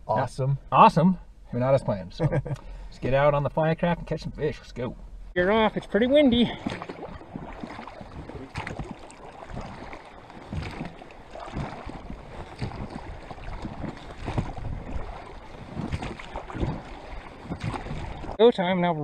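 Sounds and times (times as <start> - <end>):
water splashing against boat: 5.4 - 18.4
wind noise: 6.4 - 18.4.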